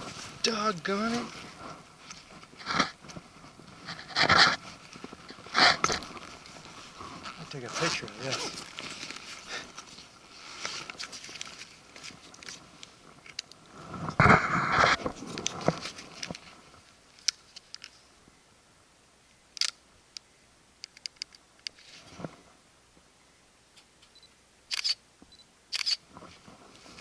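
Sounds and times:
sharp clicks: 19.6s - 21.8s.

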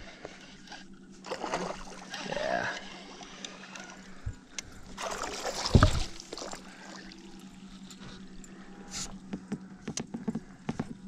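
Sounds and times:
fish splashing: 4.9s - 7.6s
loud thump on boat: 5.6s - 6.1s.

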